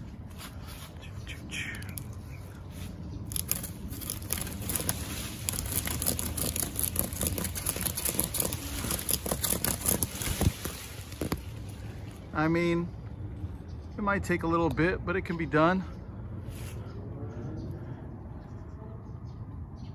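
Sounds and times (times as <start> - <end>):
leaves and twigs rustling: 0.0 - 12.5
steady low rumble: 0.0 - 19.9.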